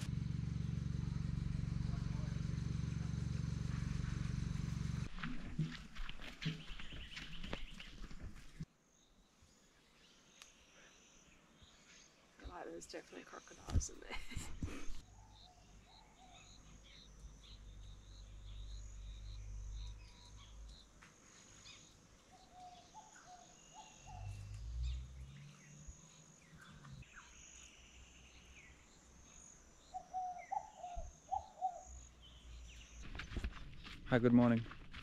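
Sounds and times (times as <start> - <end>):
bird calls and chirps: 6.2 - 8.6, 15.0 - 34.0.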